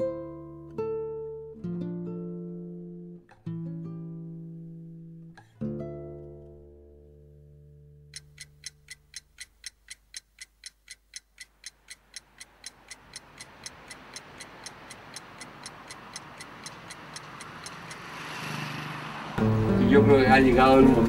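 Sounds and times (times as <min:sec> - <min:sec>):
clock ticking: 0:08.1 - 0:18.4.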